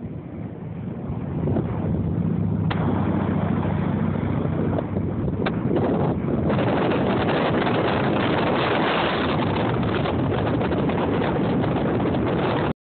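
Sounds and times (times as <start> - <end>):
wind buffeting microphone: 0.0 - 12.7
ocean surf breaking: 0.6 - 12.7.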